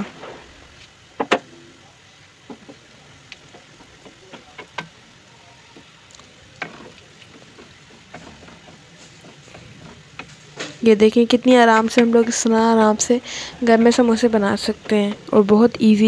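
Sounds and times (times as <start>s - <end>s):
deep-frying oil sizzling: 1.8s - 16.0s
wooden spatula knocking pan: 2.4s - 5.0s, 6.6s - 10.8s.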